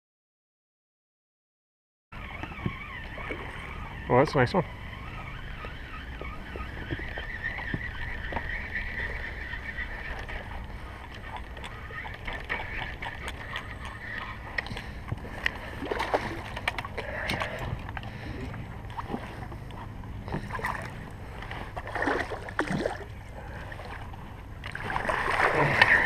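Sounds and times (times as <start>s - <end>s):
fishing reel whirring: 2.2s - 19.4s
small water splashes: 15.6s - 18.2s, 20.3s - 21.0s, 21.6s - 26.0s.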